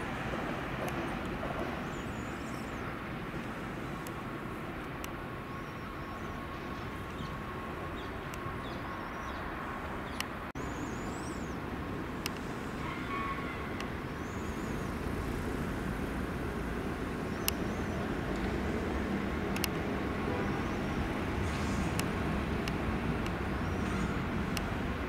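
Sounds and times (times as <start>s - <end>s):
train rumbling: 0.0s - 8.9s, 11.6s - 25.0s
sharp clicks: 19.5s - 19.8s.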